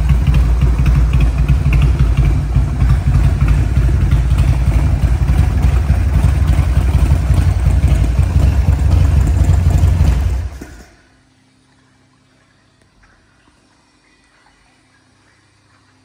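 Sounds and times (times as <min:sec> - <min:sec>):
motorcycle engine idling loudly: 0:00.0 - 0:10.9.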